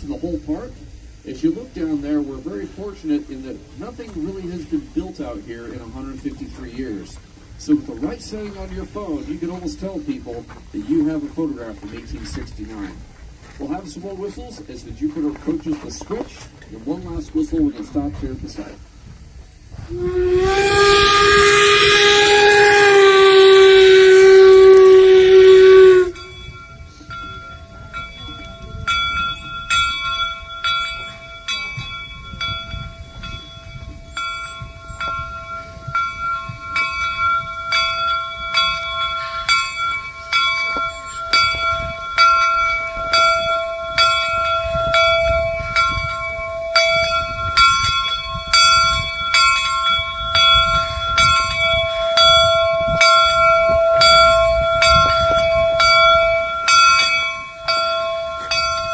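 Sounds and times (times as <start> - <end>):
locomotive rumble: 0.0 - 58.9
steam whistle: 19.8 - 26.3, 51.8 - 56.7
locomotive bell ringing: 19.9 - 58.9.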